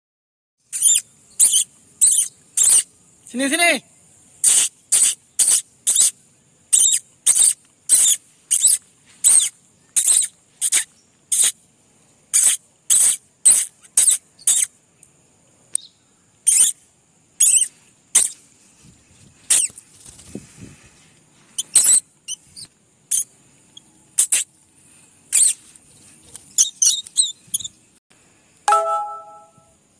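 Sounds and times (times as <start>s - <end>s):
lovebirds chirping shrilly: 0.7s - 2.9s, 4.4s - 11.6s, 12.3s - 14.7s, 15.8s - 16.8s, 17.4s - 18.4s, 19.4s - 19.8s, 21.5s - 23.3s, 25.3s - 25.6s, 26.5s - 27.8s.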